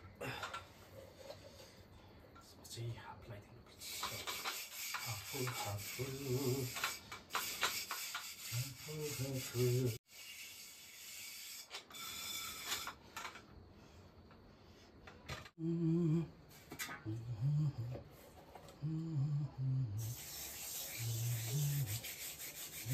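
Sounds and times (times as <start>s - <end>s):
man humming: 15.6s - 16.4s, 17.0s - 18.1s, 18.7s - 20.2s.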